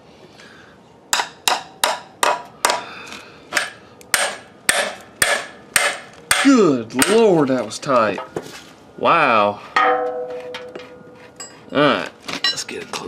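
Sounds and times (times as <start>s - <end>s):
hammer blows on metal: 9.7s - 11.6s.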